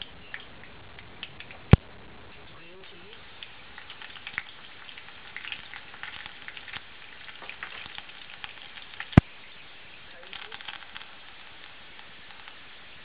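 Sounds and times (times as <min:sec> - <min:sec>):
hot oil sizzling and crackling: 0:00.0 - 0:13.0
oil popping: 0:00.0 - 0:13.0.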